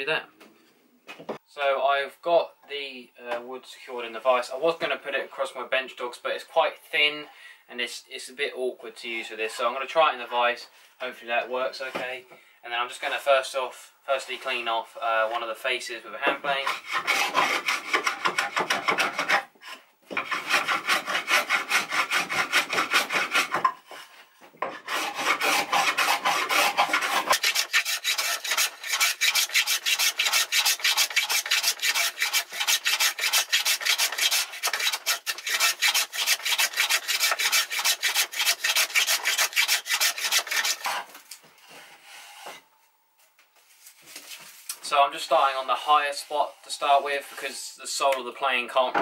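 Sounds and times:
hand plane shaving wood: 16.5 - 23.6, 24.7 - 41.2.

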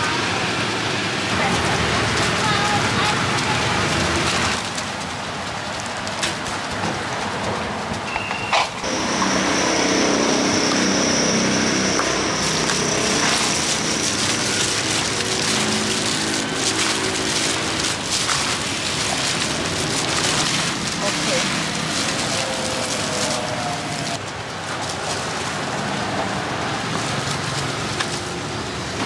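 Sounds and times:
vehicle engine running: 0.0 - 29.0
rustling hiss: 1.3 - 28.9
thin high whine: 8.1 - 16.6.

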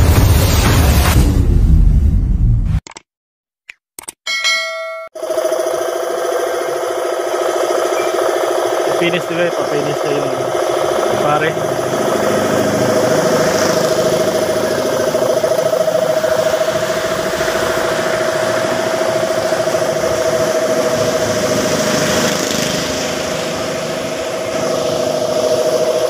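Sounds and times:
air compressor humming: 5.2 - 26.0.

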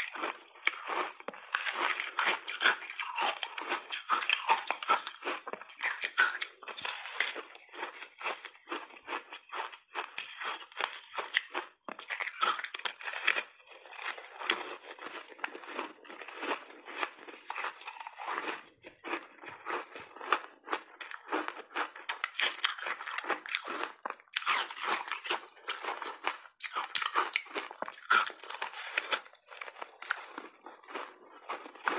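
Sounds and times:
crunching and chewing ice cream: 0.0 - 31.9.

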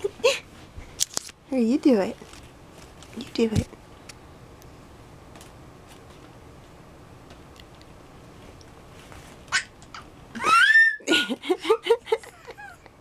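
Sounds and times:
toddler squealing: 10.4 - 11.1
toddler yelping: 10.4 - 11.1.

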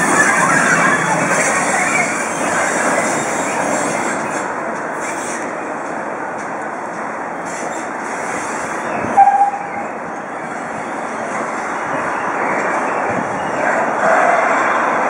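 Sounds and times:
short high tone: 9.2 - 9.8.

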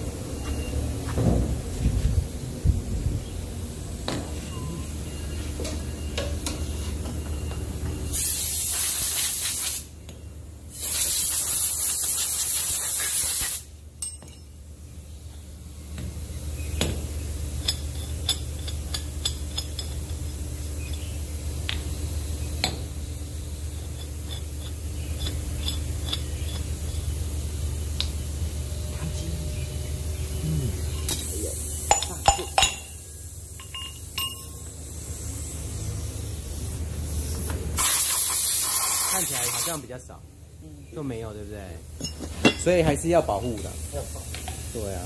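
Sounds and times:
low workshop hum: 0.0 - 45.0
compressed air hissing: 8.1 - 9.9, 10.7 - 13.7, 34.8 - 39.8.

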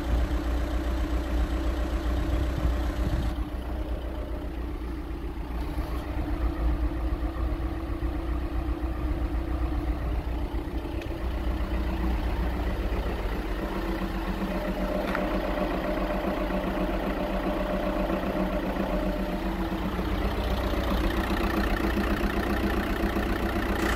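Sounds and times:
diesel engine idling: 0.0 - 23.9.

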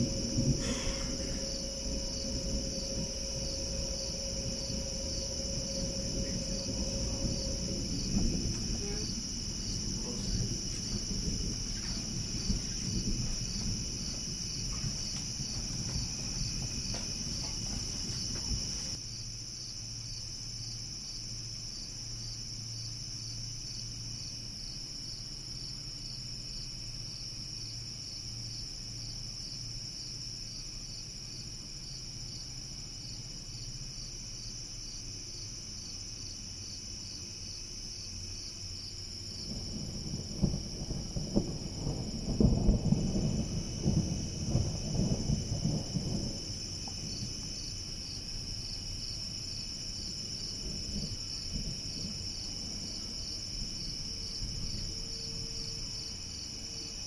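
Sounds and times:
low rumble: 0.0 - 19.0
faint low hum: 0.0 - 19.2
crickets chirping: 0.0 - 57.0.

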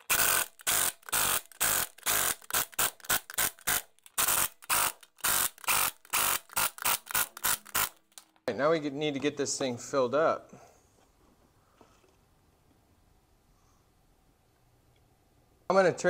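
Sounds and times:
pneumatic impact wrench bursts: 0.0 - 8.0.

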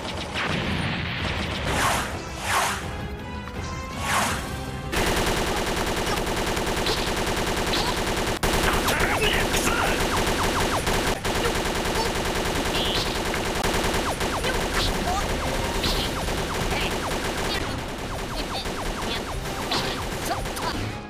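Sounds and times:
cartoon gunfire volley: 4.9 - 21.0.

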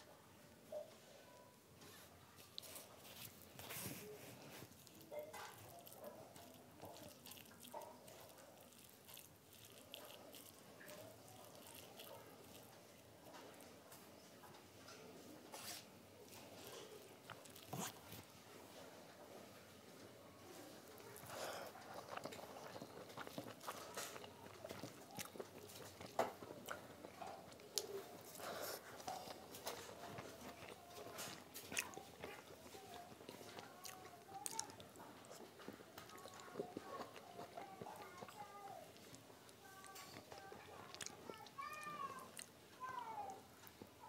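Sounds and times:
fingers mashing rice squishing: 2.4 - 14.6, 15.5 - 18.4, 20.7 - 42.6
chewing and wet mouth smacks: 4.6 - 13.7, 16.3 - 18.3, 20.8 - 41.6, 42.3 - 42.6.

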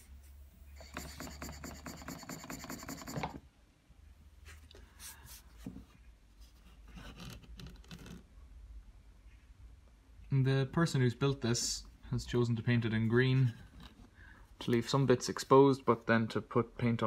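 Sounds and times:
handling and rubbing sounds: 4.3 - 8.3.

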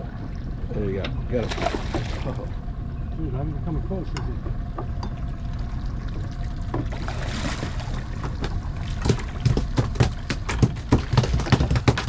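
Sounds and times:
steady low rumble: 0.0 - 11.5
fish splashing in water: 1.4 - 2.4, 6.9 - 11.2.

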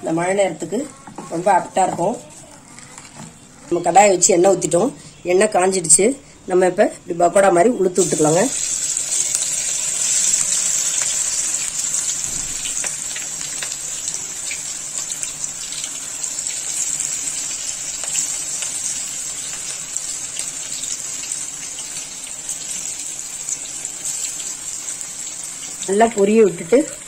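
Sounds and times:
batter sizzling in hot oil: 7.9 - 27.0.

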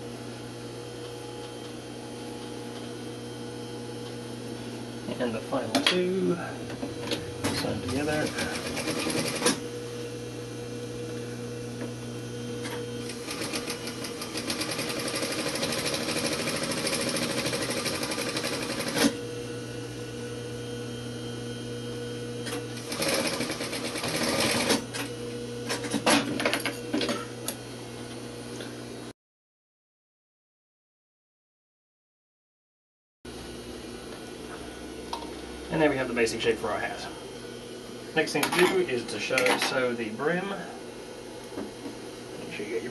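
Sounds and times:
sewing machine motor hum: 6.4 - 10.0, 10.9 - 20.4, 22.3 - 27.6
sewing machine needle chatter: 8.2 - 9.6, 13.1 - 19.1, 22.9 - 24.8.

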